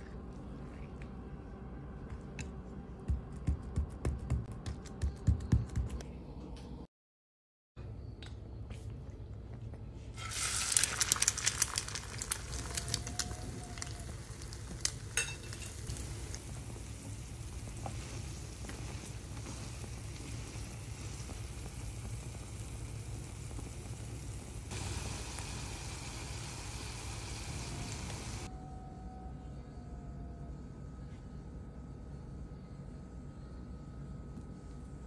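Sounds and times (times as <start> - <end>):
bread sizzling in hot oil: 10.2 - 28.5
oil crackling and popping: 10.2 - 28.5.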